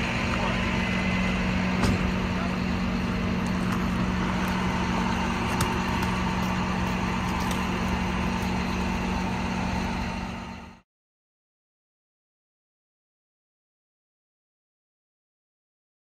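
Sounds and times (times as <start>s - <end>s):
truck engine idling: 0.0s - 10.8s.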